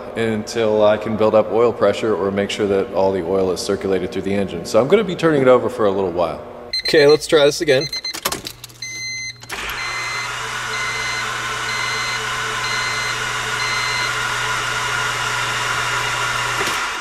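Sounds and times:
chime beeping: 6.7s - 14.0s
starter motor cranking engine: 8.1s - 17.0s.

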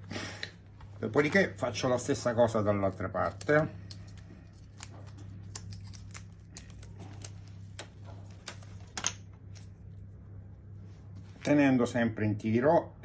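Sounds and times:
low steady hum: 0.0s - 13.0s
tape clicking and crackling: 2.8s - 9.8s.

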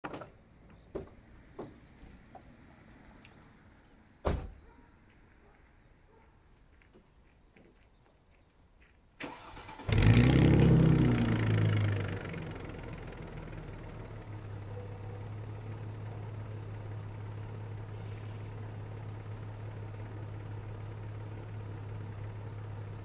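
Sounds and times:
starter cranking engine: 9.2s - 11.2s
car engine revving and idling: 9.3s - 23.0s.

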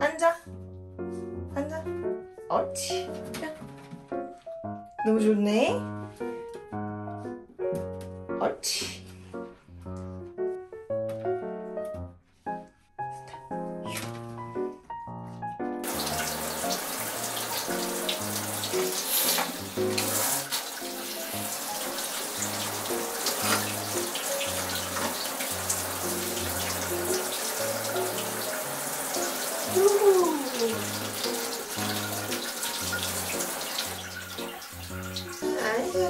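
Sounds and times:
background music: 0.0s - 36.0s
shower head spraying water: 15.8s - 36.0s.

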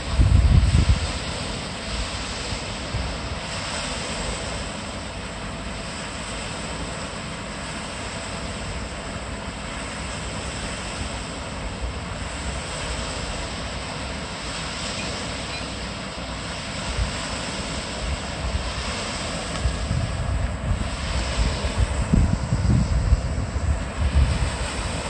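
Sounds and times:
wind rumbling on microphone: 0.0s - 4.8s, 10.2s - 25.0s.

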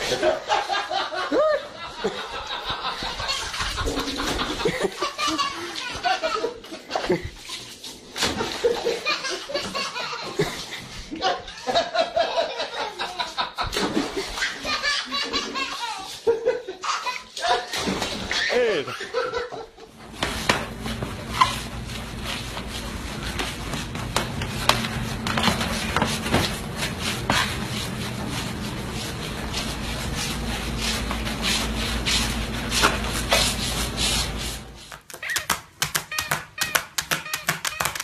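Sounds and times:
mop rubbing on hardwood floor: 2.8s - 11.2s, 19.9s - 35.1s.

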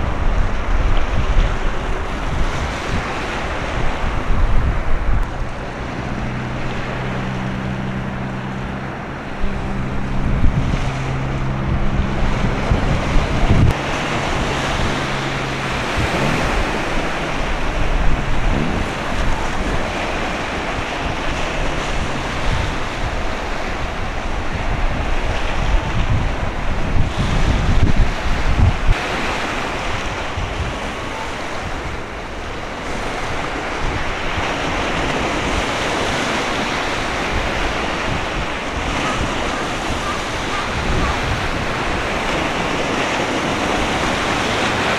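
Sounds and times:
choppy sea water: 0.0s - 44.9s
wind buffeting microphone: 0.0s - 44.9s
low hum: 3.8s - 25.1s.

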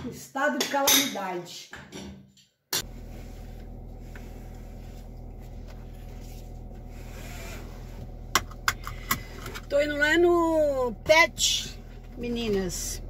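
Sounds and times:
car engine idling: 2.8s - 13.0s.

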